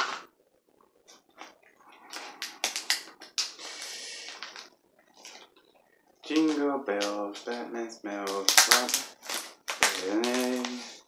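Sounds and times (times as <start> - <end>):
plastic mailer crinkling: 2.1 - 5.5, 6.2 - 11.0.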